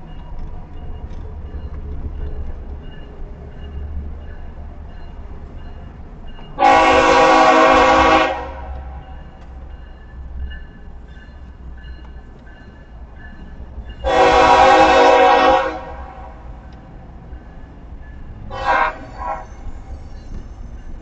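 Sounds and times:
locomotive air horn: 6.6s - 9.0s, 14.0s - 16.6s, 18.5s - 19.7s.

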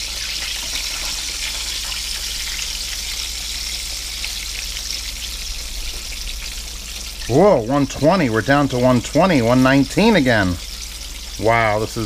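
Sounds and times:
chicken deep-frying in hot oil: 0.0s - 12.0s.

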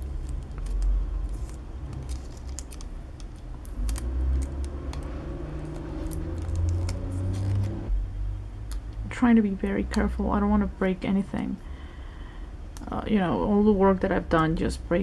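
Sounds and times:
tape peeling off plastic: 0.0s - 7.9s.

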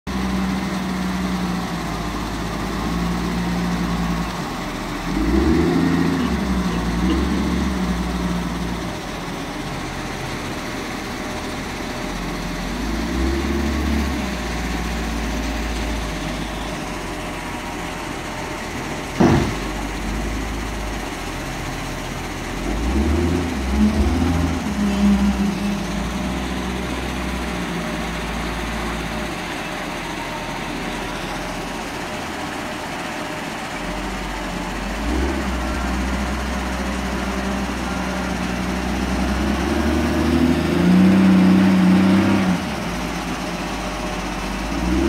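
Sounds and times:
diesel engine revving: 0.1s - 45.0s
sharp knock: 19.2s - 19.8s.

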